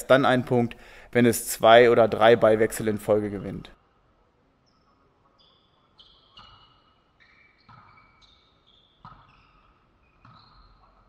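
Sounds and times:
sneakers squeaking on floor: 4.6s - 11.0s.

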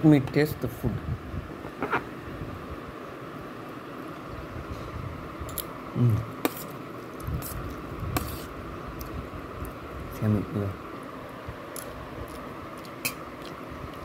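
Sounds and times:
low voice hum: 5.9s - 6.3s.

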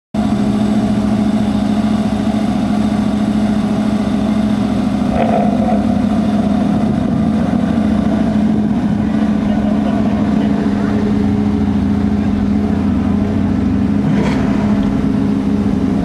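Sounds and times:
engine idling: 0.2s - 16.0s.

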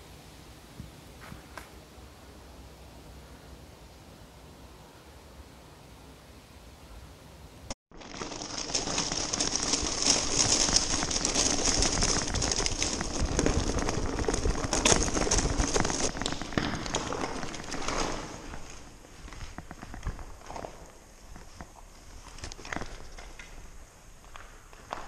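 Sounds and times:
bicycle tyres rolling over rubble: 7.9s - 25.0s.

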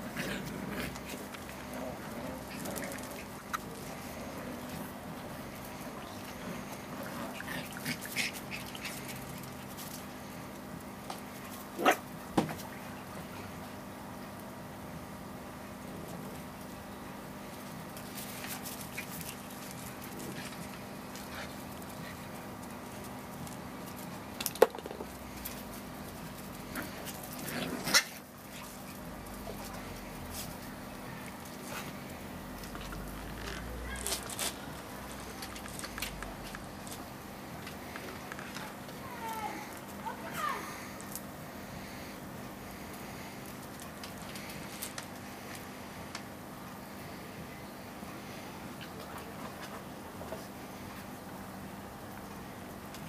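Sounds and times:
puppy yapping: 33.7s - 34.3s.

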